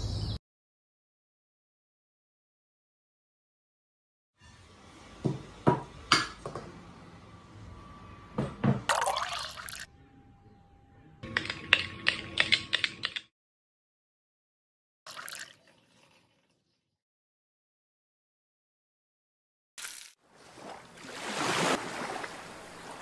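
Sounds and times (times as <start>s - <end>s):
liquid splashing: 8.9s - 9.9s, 15.1s - 16.2s, 19.8s - 23.0s.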